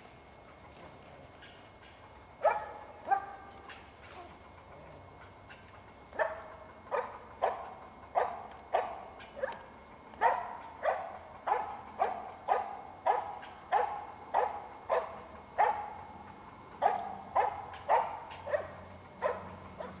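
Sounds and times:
dog barking: 2.4s - 3.5s, 6.2s - 9.6s, 10.2s - 16.0s, 16.8s - 20.0s.

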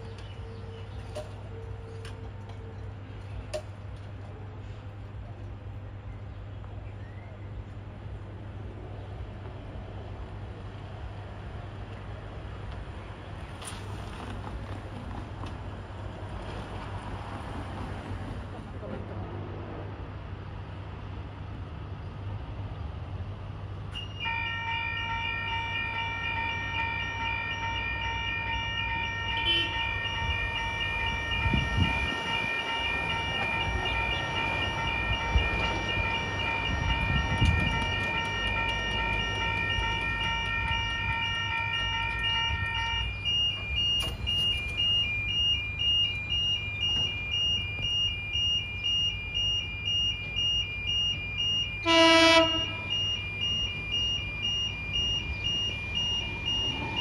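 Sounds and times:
level crossing warning bells: 23.9s - 57.0s.

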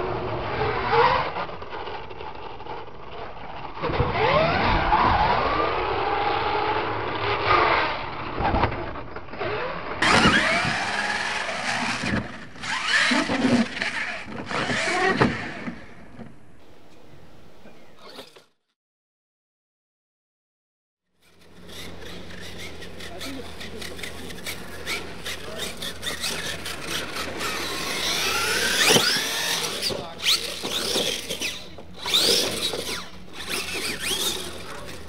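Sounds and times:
toy truck motor whining: 9.4s - 15.9s, 18.0s - 18.4s, 21.2s - 35.0s
tyres scrabbling on dirt: 21.5s - 35.0s
toy truck landing thuds: 28.2s - 33.1s.

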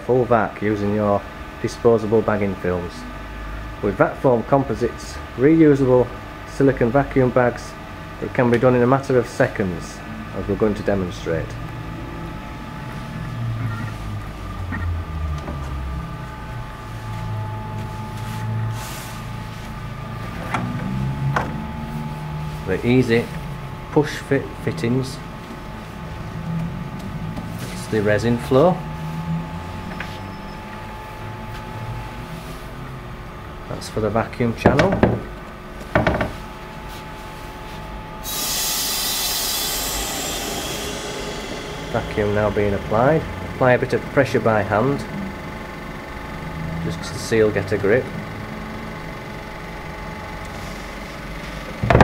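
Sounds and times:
low machine hum: 0.0s - 52.0s
short hiss: 38.2s - 42.8s.

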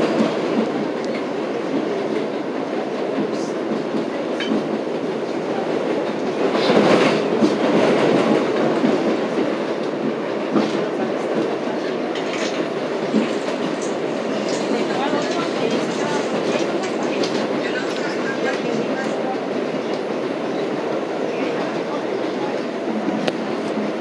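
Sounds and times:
train wheels rumbling on rail: 0.0s - 24.0s.

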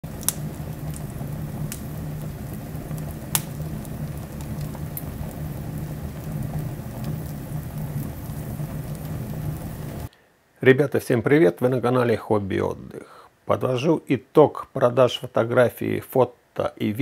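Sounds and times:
flames rushing: 0.0s - 10.1s
wood crackling and popping: 0.0s - 10.1s.

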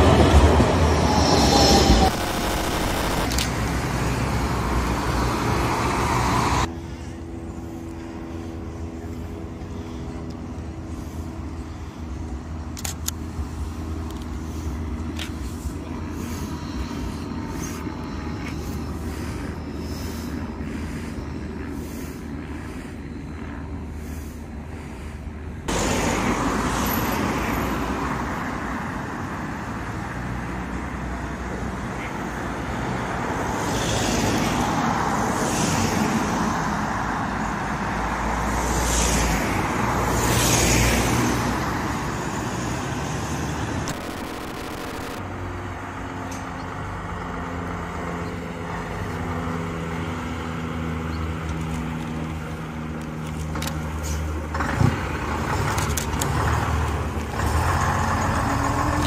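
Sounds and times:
trams passing on track: 0.0s - 12.5s
bus diesel engine droning: 0.0s - 26.0s, 42.0s - 59.0s
traffic noise: 0.0s - 59.0s.

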